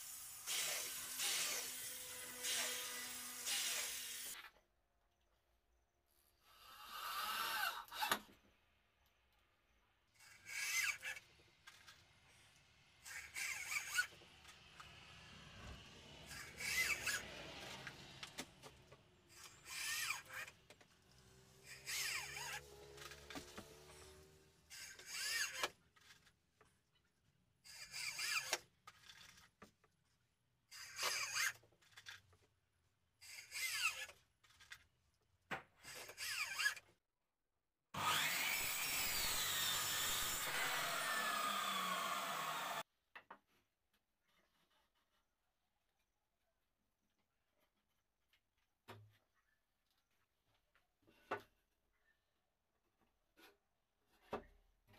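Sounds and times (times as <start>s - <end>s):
power drill driving screws into wood: 0.0s - 4.4s, 19.3s - 20.5s, 21.6s - 25.7s, 27.8s - 28.6s, 38.0s - 42.8s.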